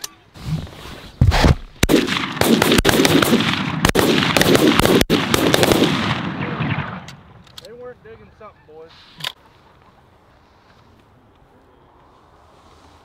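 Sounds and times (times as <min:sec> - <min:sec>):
shotgun blasts: 0:01.3 - 0:07.3.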